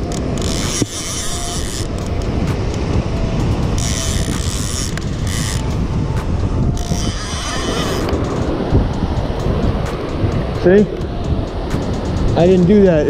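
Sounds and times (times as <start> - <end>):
fishing reel clicker ratcheting: 0.0 - 5.8, 6.7 - 8.6
surf: 0.0 - 13.0
wind on microphone: 0.0 - 13.0.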